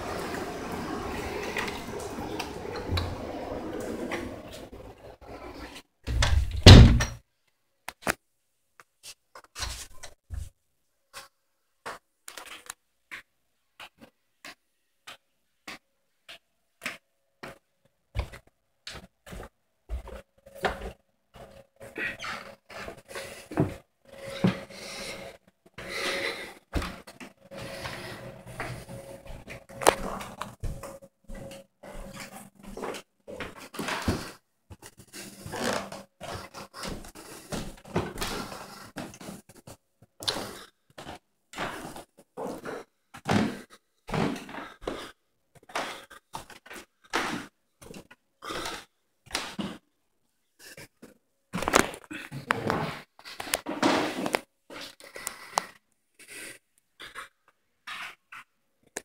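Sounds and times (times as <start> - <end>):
footsteps on carpeted stairs: 16.8 - 21.6, 22.7 - 39.6.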